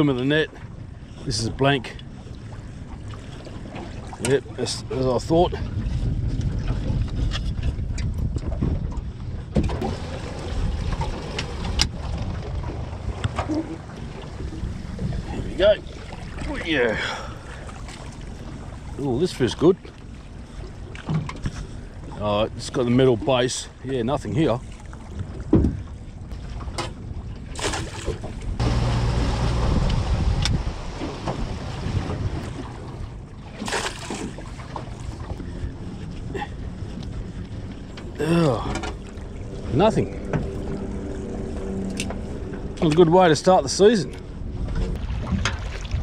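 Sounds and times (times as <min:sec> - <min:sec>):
water lapping against boat hull: 0:00.0 - 0:46.0
wind rumbling on microphone: 0:00.0 - 0:46.0
water splashing and dripping: 0:27.6 - 0:35.6, 0:44.9 - 0:46.0.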